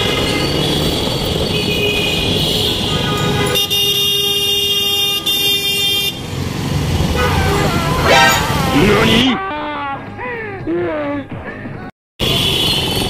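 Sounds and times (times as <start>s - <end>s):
motorcycle engine in traffic: 0.0s - 3.5s, 6.1s - 9.4s
vehicle horn: 1.6s - 6.2s, 7.1s - 9.3s.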